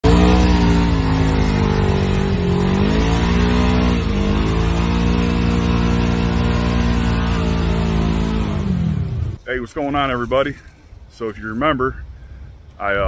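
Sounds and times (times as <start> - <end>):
utv engine revving in mud: 0.0 - 9.4.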